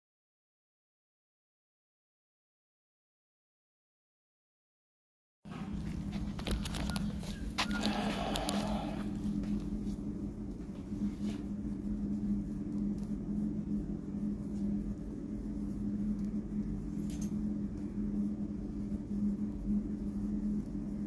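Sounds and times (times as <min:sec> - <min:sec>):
low machine hum: 0:05.5 - 0:21.0
low rumble: 0:05.5 - 0:21.0.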